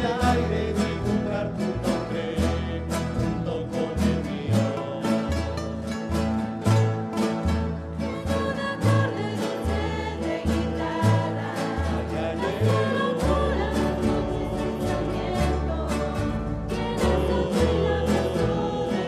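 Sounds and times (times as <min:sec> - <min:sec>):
acoustic guitars strumming: 0:00.0 - 0:19.0
group of voices singing: 0:00.0 - 0:19.0
plucked double bass: 0:00.0 - 0:19.0.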